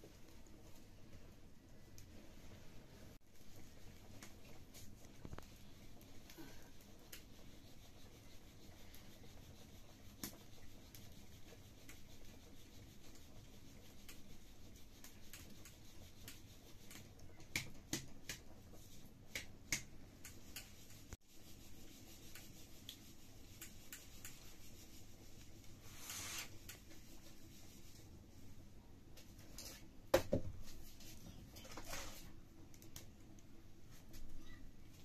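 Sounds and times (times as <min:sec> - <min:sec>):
wood fire crackling and popping: 0:15.0 - 0:20.7, 0:32.7 - 0:33.5.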